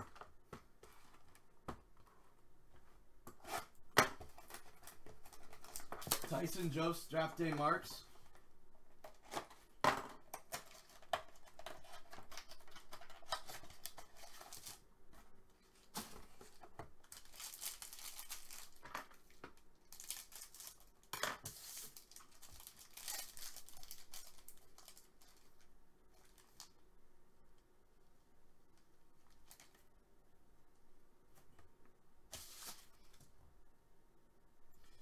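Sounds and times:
foil pack crinkling and tearing: 10.5s - 14.8s, 17.0s - 19.3s, 19.9s - 25.6s.

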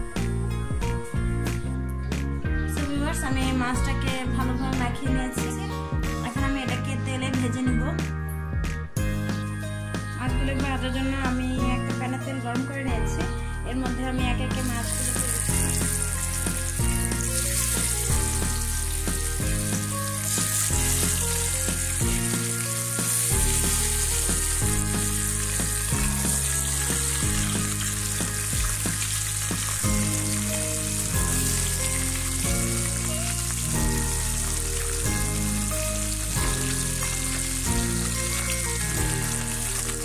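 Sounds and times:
background music: 0.0s - 40.0s
fish sizzling in hot oil: 14.6s - 40.0s.

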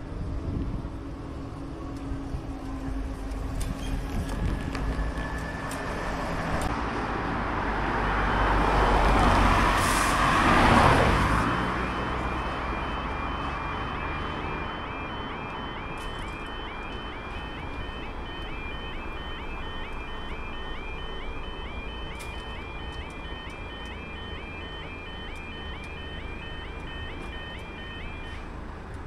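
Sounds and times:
cars passing close by: 1.0s - 29.0s
level crossing warning alarm: 8.0s - 28.9s.

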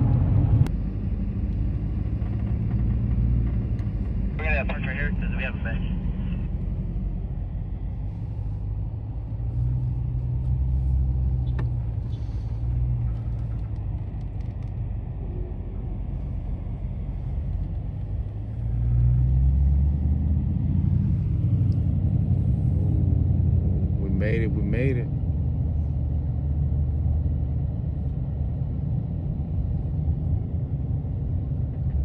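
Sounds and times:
car engine running: 0.0s - 23.1s.

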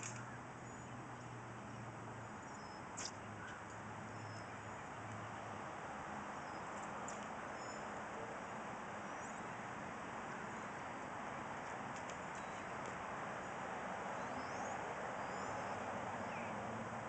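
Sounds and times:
outdoor background hiss: 0.0s - 17.0s
faint bird chirps: 2.3s - 5.3s, 7.5s - 8.0s, 14.2s - 16.6s.

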